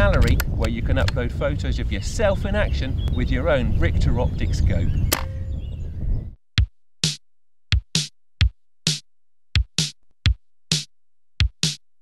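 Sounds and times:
drum machine kick thuds: 0:06.6 - 0:09.0, 0:09.6 - 0:11.8
drum machine snare hits: 0:06.6 - 0:09.0, 0:09.6 - 0:11.8.

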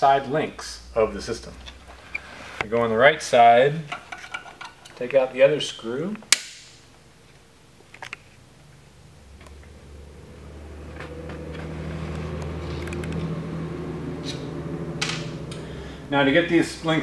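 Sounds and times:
low machine hum: 0:00.0 - 0:03.2, 0:08.4 - 0:17.0.

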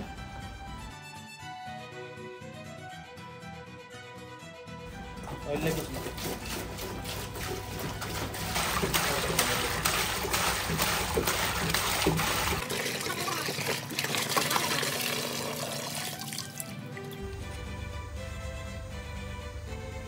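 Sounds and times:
background music: 0:00.0 - 0:13.0, 0:14.2 - 0:20.0
water pouring into a plastic tub: 0:05.2 - 0:17.3.

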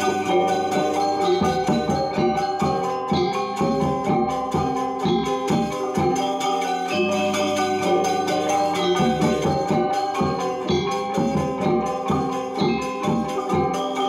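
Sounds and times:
drum strokes: 0:00.0 - 0:14.0
metallophones ringing: 0:00.0 - 0:14.0.

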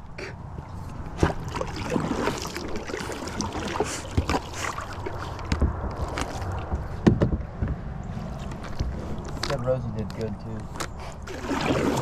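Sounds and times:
paddle splashing in water: 0:00.8 - 0:07.0, 0:11.2 - 0:12.0.

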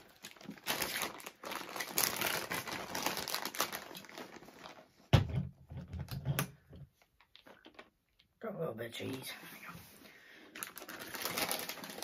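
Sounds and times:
plastic packaging crinkling: 0:00.0 - 0:05.2, 0:07.0 - 0:08.3, 0:10.4 - 0:12.0.

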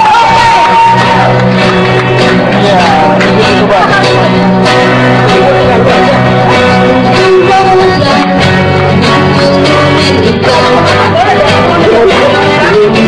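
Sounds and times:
acoustic guitar: 0:00.0 - 0:13.0
bass: 0:00.0 - 0:13.0
people singing: 0:02.6 - 0:13.0.

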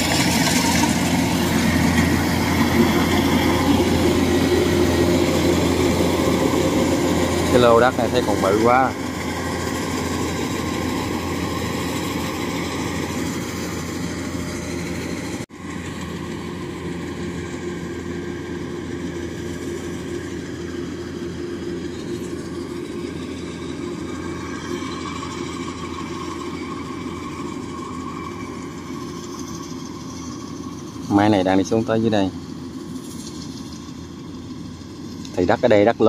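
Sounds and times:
combine harvester engine running: 0:00.0 - 0:36.0.

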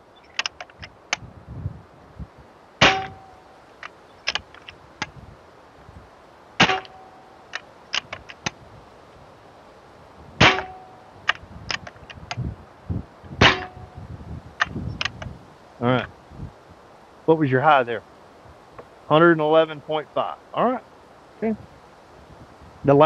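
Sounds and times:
small clicks: 0:00.3 - 0:01.2, 0:03.8 - 0:05.1
air rifle shot with metallic ping: 0:02.8 - 0:03.4, 0:06.6 - 0:07.1, 0:10.4 - 0:11.0, 0:13.4 - 0:13.9.

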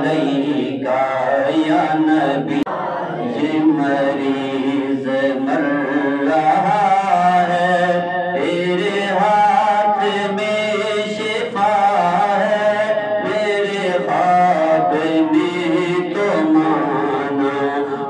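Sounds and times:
man chanting melodically: 0:00.0 - 0:18.0.

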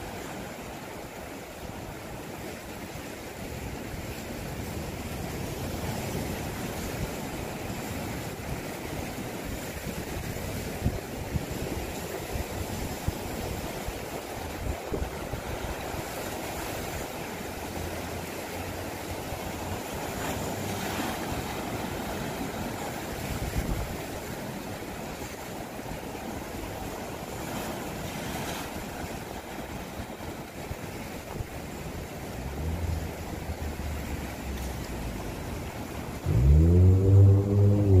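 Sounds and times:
waves breaking over rocks: 0:00.0 - 0:38.0
low rumble: 0:32.2 - 0:38.0.

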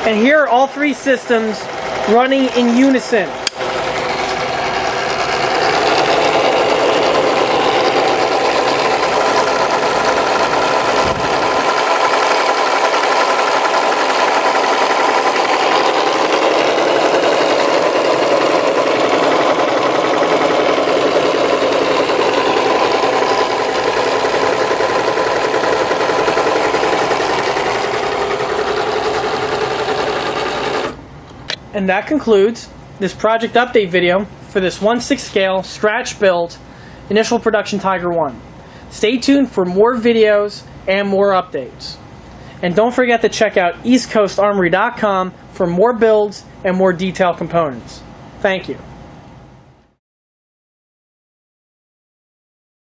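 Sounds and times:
small electric motors whirring: 0:01.6 - 0:31.0.

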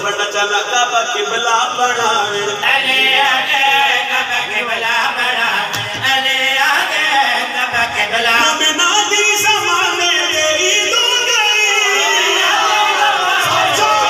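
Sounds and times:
man singing through loudspeakers: 0:00.0 - 0:14.0.

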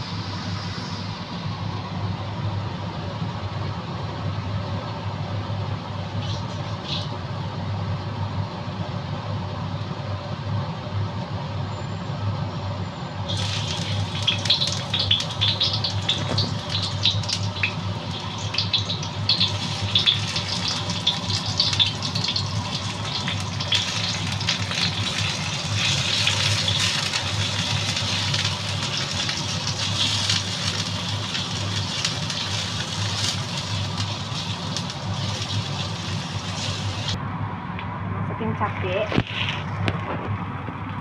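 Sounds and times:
garlic sizzling in hot oil: 0:00.0 - 0:01.2, 0:13.3 - 0:37.2
steady low hum: 0:00.0 - 0:41.0.

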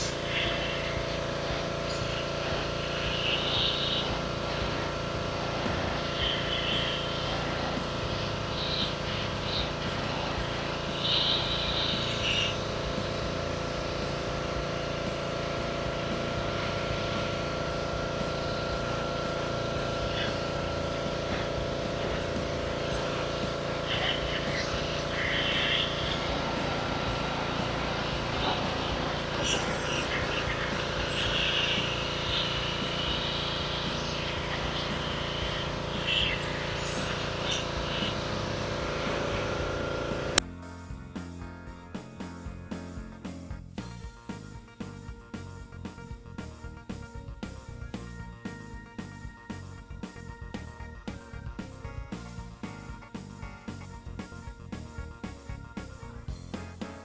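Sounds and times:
pressure washer spray hissing: 0:00.0 - 0:40.4.

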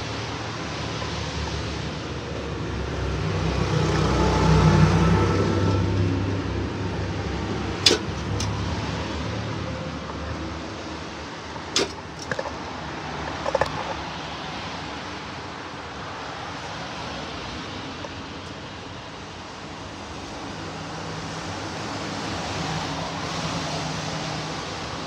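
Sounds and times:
sharp clicks and knocks: 0:07.8 - 0:08.7, 0:11.7 - 0:12.6, 0:13.3 - 0:14.0.

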